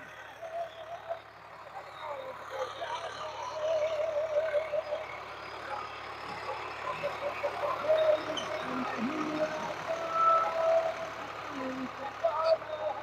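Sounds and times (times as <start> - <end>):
diesel tractor engine running: 0.0 - 13.0
wavering tones: 6.8 - 12.7.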